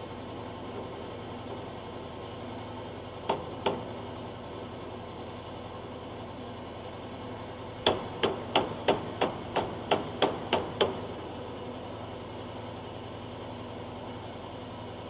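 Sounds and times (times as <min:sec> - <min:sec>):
hammer blows on roof: 0:03.2 - 0:04.0, 0:07.8 - 0:11.2.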